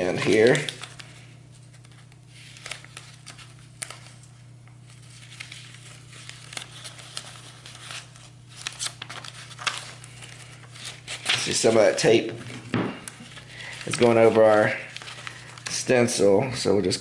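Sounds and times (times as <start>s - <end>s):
paper rustling and crinkling: 0.0s - 16.4s
steady low hum: 0.0s - 17.0s
tape clicks and crackles: 0.1s - 11.9s.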